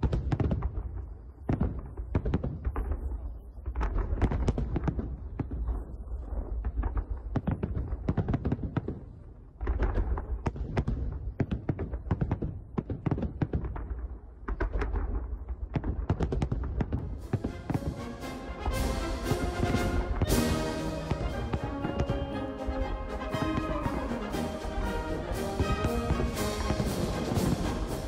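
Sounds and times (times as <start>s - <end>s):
fireworks cracking and banging: 0.0s - 28.0s
low booming: 13.6s - 28.0s.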